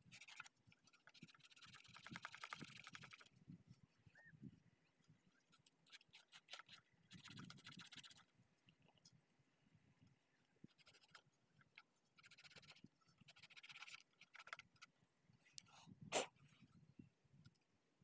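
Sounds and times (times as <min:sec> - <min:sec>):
hand scratching metal contacts: 0:00.0 - 0:03.3, 0:10.7 - 0:14.9.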